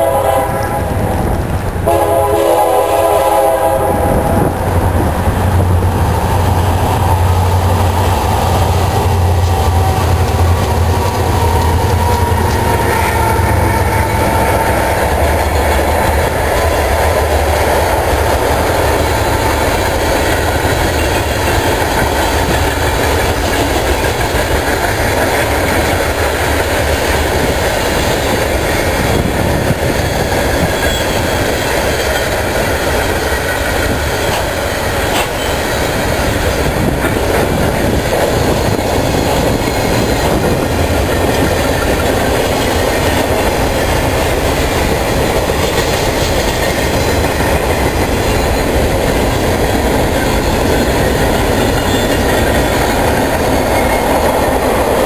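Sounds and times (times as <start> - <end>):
locomotive air horn blasts: 0.0 - 1.0, 1.8 - 4.5, 11.8 - 15.2
freight cars rolling by: 3.1 - 55.0
locomotive engines running: 4.5 - 55.0.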